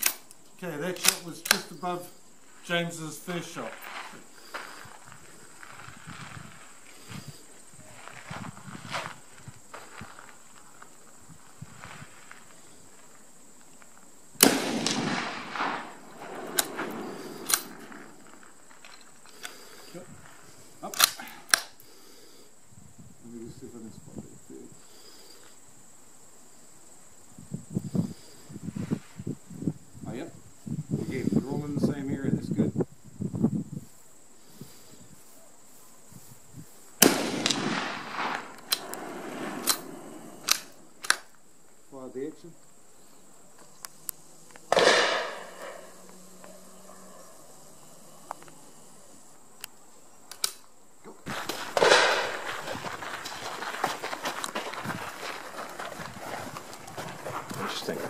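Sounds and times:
rifle bolt metallic clicks: 0.0s - 1.7s, 17.4s - 17.8s, 20.9s - 21.7s, 39.6s - 41.3s, 50.3s - 50.7s
rifle shot echoing: 14.4s - 18.1s, 37.0s - 40.7s, 44.7s - 46.0s, 51.8s - 52.5s.

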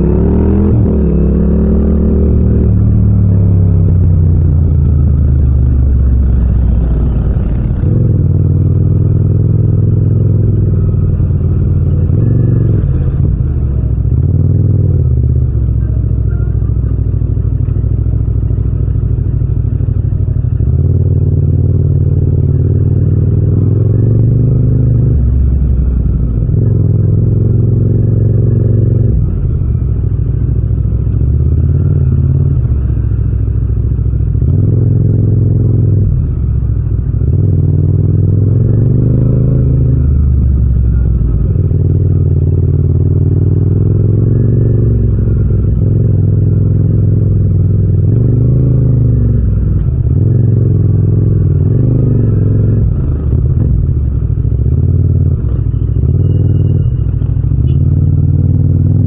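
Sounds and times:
motorcycle engine revving: 0.0s - 59.0s.

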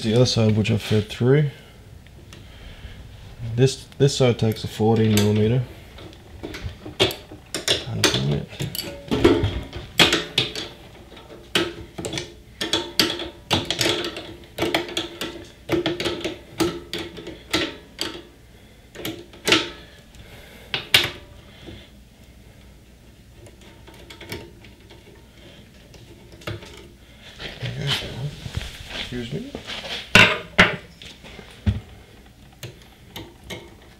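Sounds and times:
faint handling sounds: 21.5s - 30.2s.

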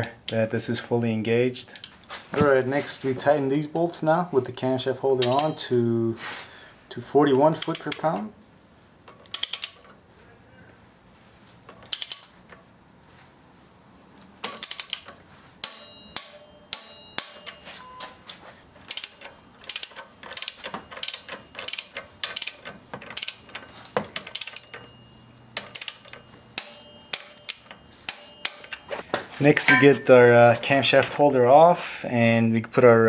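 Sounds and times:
ratchet wrench clicking: 7.6s - 8.1s, 9.1s - 9.9s, 11.8s - 12.3s, 14.4s - 15.1s, 18.9s - 23.5s, 24.2s - 24.8s, 25.6s - 28.8s.

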